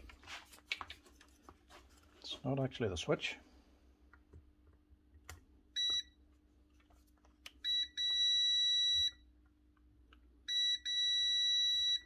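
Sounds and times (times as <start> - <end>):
multimeter continuity beeps: 5.8 - 6.2, 7.6 - 9.3, 10.5 - 12.0.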